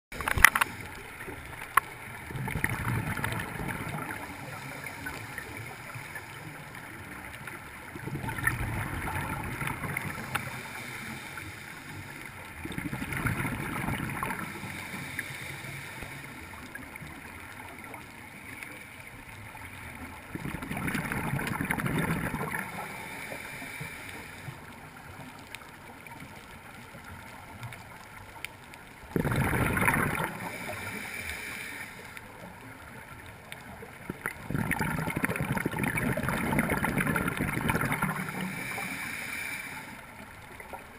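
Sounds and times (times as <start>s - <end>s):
quiet regulator hiss: 0.2s - 29.2s, 29.8s - 34.5s, 35.5s - 40.9s
exhaled bubbles bursts: 2.2s - 6.1s, 7.9s - 10.6s, 12.6s - 14.8s, 20.3s - 22.9s, 29.1s - 30.8s, 34.0s - 38.7s.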